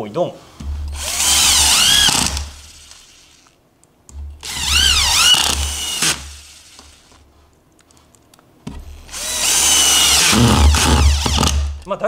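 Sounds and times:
cordless drill driving screws into wood: 0.9 - 3.6, 4.4 - 7.2, 8.8 - 11.9.

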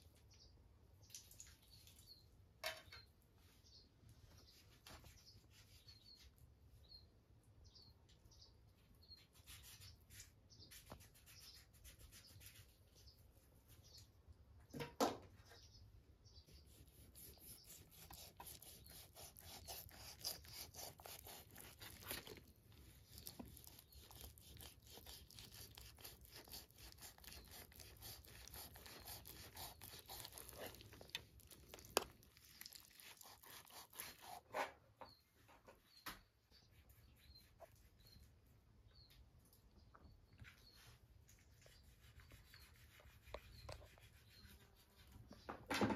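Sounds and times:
knife slicing meat: 16.7 - 34.7.

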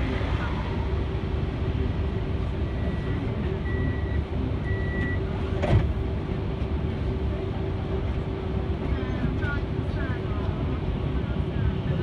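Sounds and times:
city traffic rumble: 0.0 - 12.0.

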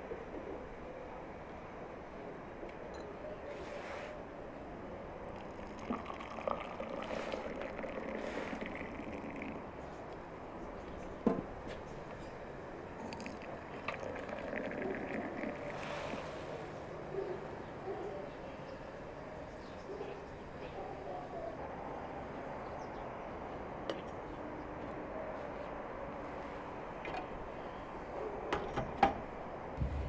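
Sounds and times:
hot water trickling into a glass: 5.3 - 9.7, 13.0 - 16.2.

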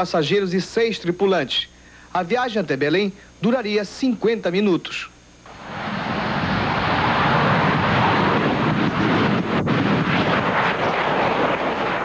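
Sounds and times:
jet engines at takeoff: 5.5 - 12.0.

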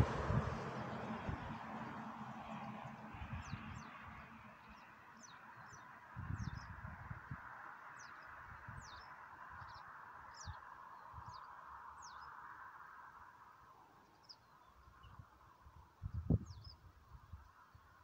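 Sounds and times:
small birds chirping: 7.8 - 12.4.

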